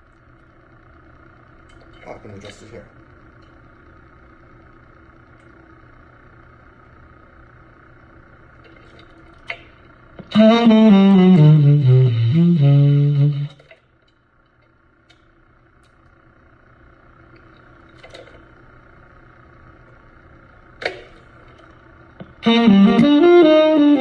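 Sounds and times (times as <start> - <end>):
faint steady hum: 0.0 - 24.0
tenor saxophone phrase: 10.3 - 13.6, 22.4 - 24.0.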